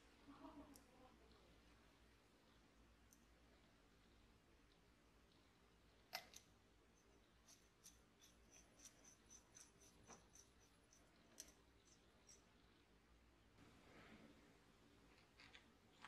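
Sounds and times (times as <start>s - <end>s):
light ticks of threads turning: 6.1s - 12.6s.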